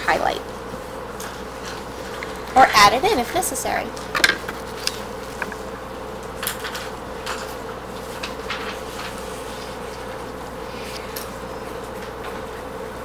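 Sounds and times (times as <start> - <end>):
steady background hum: 0.0 - 13.0
paper rustling and tapping: 6.5 - 11.3.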